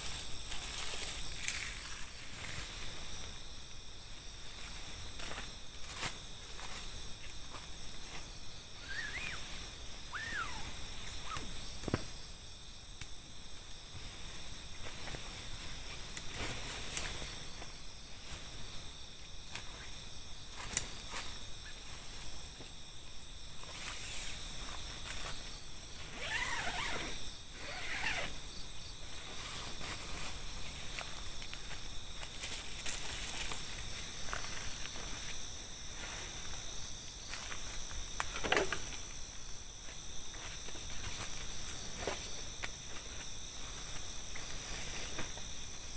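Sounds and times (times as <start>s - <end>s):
steps on grass: 0.0s - 3.4s, 4.1s - 8.4s, 29.0s - 45.9s
tent fabric rustling: 0.0s - 3.4s, 4.2s - 11.8s, 13.9s - 22.1s, 23.5s - 38.0s, 39.8s - 45.9s
night insects chorus: 0.0s - 45.9s
tent zipper being pulled open: 26.0s - 28.4s, 29.3s - 30.4s.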